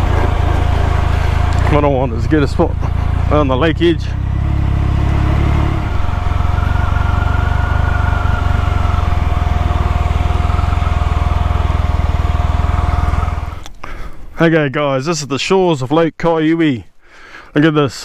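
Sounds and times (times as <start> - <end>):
motorcycle engine chugging: 0.0 - 13.6.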